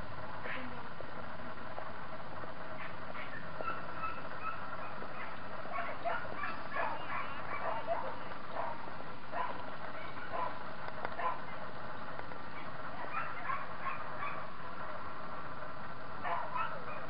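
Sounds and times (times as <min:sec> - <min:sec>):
dogs barking and yipping: 0:02.8 - 0:11.7, 0:12.5 - 0:14.8, 0:16.2 - 0:17.0.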